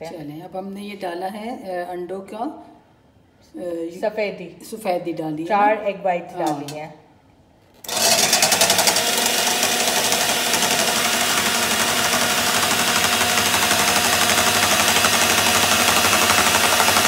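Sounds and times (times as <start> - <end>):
electric hand mixer whipping: 7.9 - 17.0.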